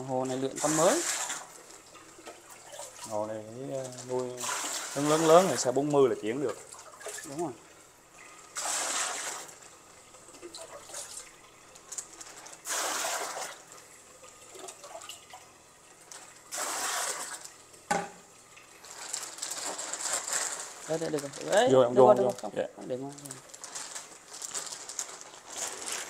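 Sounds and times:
water trickling: 0.0 - 19.5
water splashing: 0.3 - 3.2, 6.4 - 17.6.

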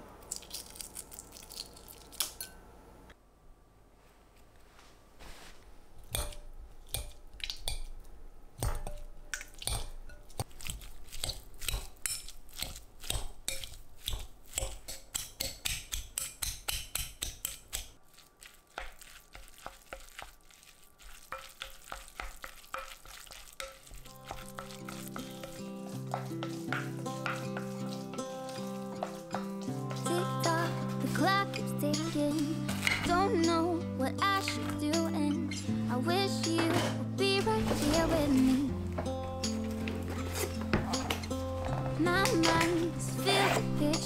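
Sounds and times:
potato masher mashing eggs in bowl: 8.6 - 31.4
wooden spoon stirring: 9.4 - 33.2, 36.5 - 44.0.

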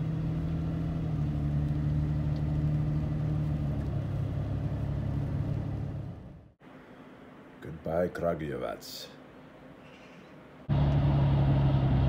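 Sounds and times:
car engine and road drone: 0.0 - 6.6, 10.6 - 12.0.

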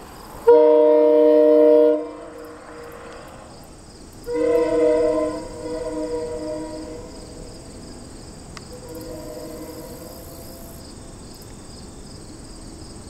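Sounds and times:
insects chirping: 0.0 - 13.0
distant train horn chord: 0.4 - 3.5, 4.2 - 10.8.

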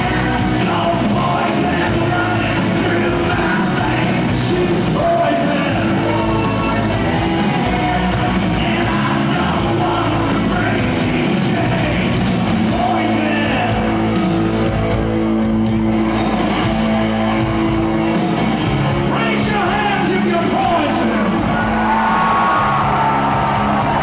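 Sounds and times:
person singing: 0.0 - 14.0
live rock band playing: 0.0 - 24.0.

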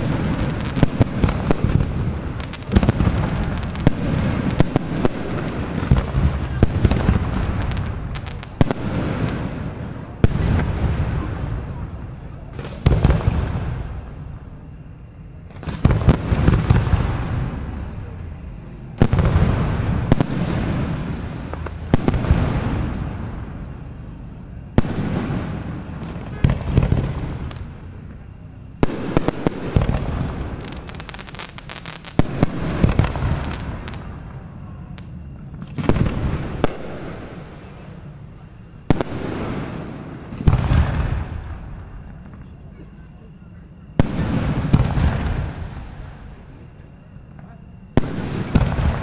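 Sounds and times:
rapid firework crackling: 0.0 - 13.9, 15.5 - 23.3, 24.7 - 38.0
rolling echo: 0.0 - 49.0.

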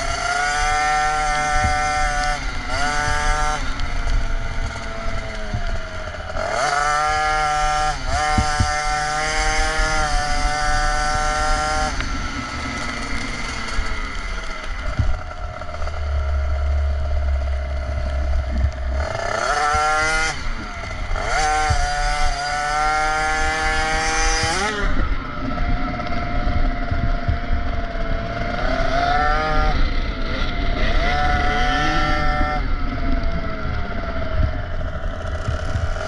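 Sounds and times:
two-stroke engine revving: 0.0 - 36.0
wind rush on microphone: 0.0 - 36.0.

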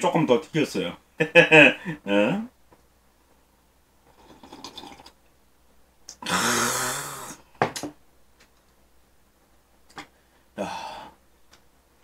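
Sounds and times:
man swallowing a drink: 4.2 - 5.2
loud breathy exhale: 6.2 - 7.4.

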